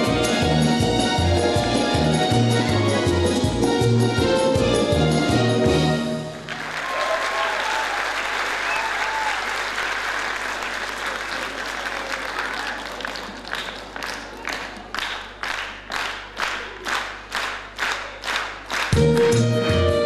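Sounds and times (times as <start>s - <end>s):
dance music: 0.0s - 6.3s
audience applause: 6.3s - 19.4s.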